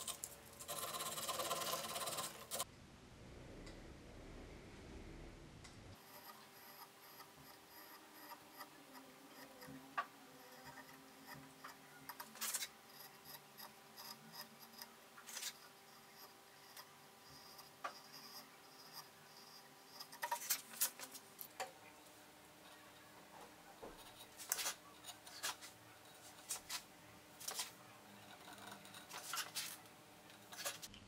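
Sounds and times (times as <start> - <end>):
carving tool cutting wood: 0.0 - 2.6, 6.0 - 21.2, 23.9 - 30.9.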